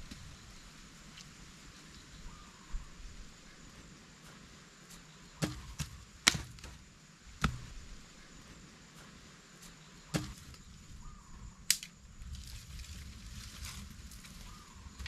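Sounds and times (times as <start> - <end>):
wood chopping strikes: 5.4 - 6.8, 7.4 - 7.8, 10.1 - 10.6.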